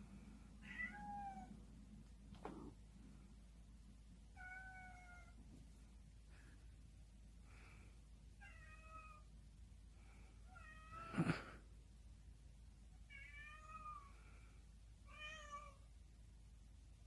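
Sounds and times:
cat meowing: 0.6s - 1.5s, 4.4s - 5.4s.

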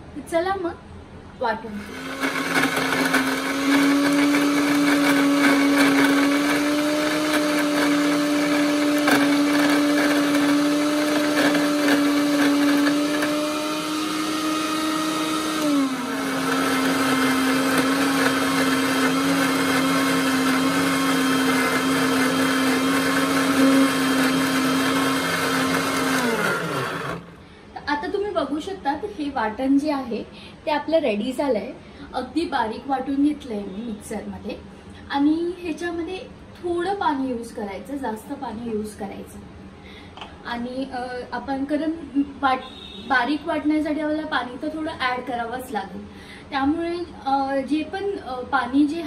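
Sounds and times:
mixer grinder motor whine: 1.8s - 27.4s.

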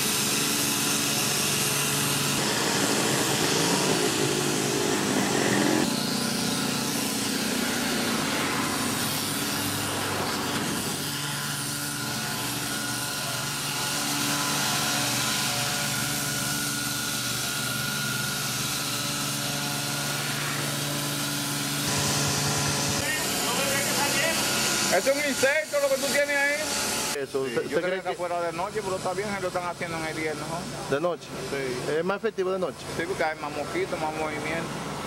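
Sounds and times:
fogging machine running: 0.0s - 27.2s.

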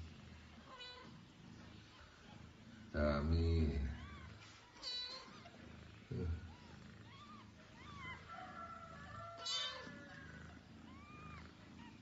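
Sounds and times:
kittens mewing: 3.6s - 12.0s.

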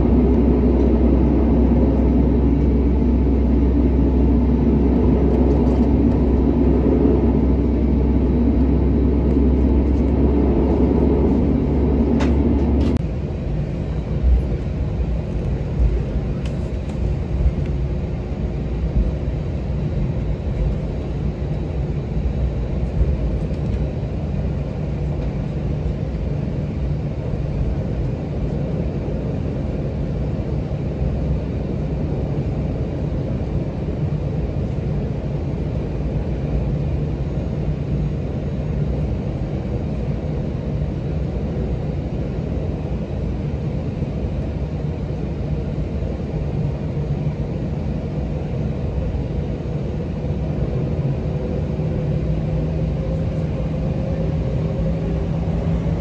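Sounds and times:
jet engine cabin hum: 0.0s - 56.0s.

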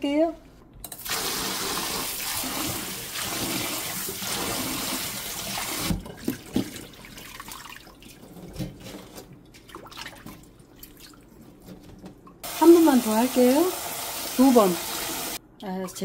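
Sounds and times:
water sloshing and dripping: 1.0s - 15.4s
hands swishing stems in water: 5.5s - 12.1s.

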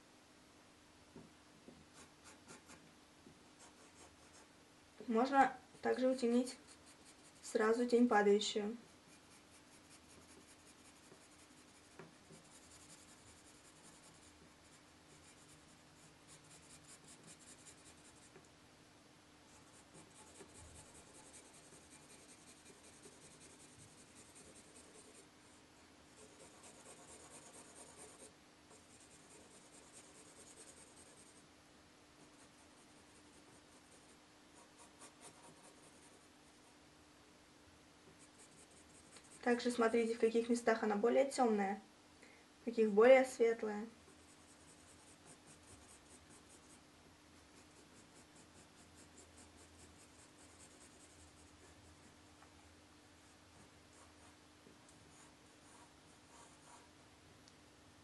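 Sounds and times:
pencil shading on paper: 5.8s - 7.6s, 9.0s - 18.4s, 19.5s - 25.6s, 26.2s - 31.4s, 32.2s - 36.3s, 38.2s - 39.7s, 44.2s - 46.8s, 47.4s - 52.1s, 55.1s - 56.9s.

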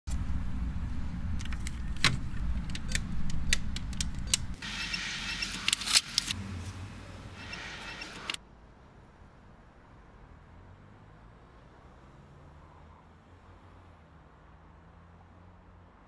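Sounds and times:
low traffic rumble: 0.1s - 16.0s
cash machine card clicks: 1.4s - 6.4s, 7.4s - 8.4s
note dispenser whirring: 2.2s - 6.4s, 7.2s - 8.4s.

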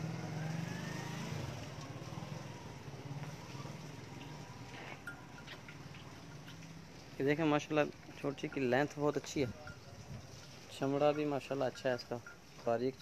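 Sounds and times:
engine pulsing hum: 0.0s - 6.9s.

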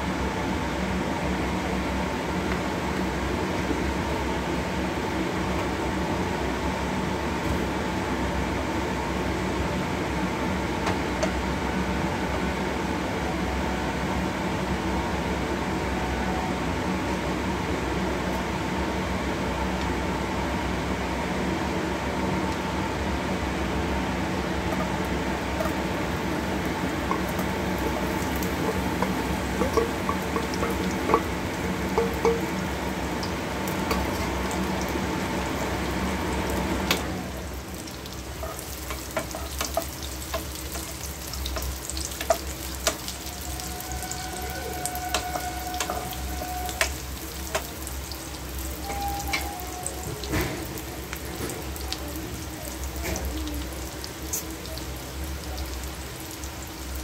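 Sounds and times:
food frying in a pan: 0.0s - 13.1s, 18.2s - 57.0s
spoon scraping a pan: 27.0s - 32.5s, 44.0s - 47.7s.

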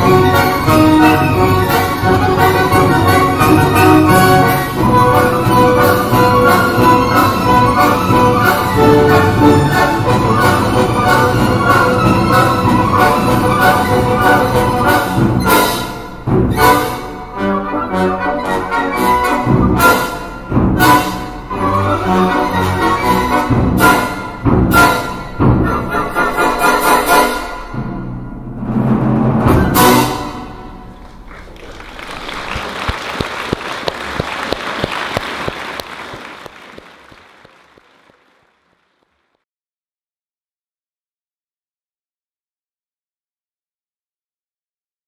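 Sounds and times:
orchestral music: 0.0s - 37.2s
audience applauding: 31.0s - 39.4s.

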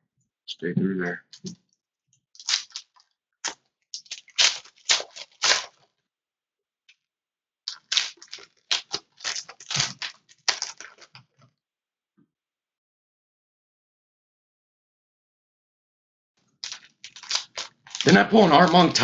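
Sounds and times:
foil pack tearing and crinkling: 2.4s - 5.8s, 7.7s - 11.2s, 16.6s - 19.0s.

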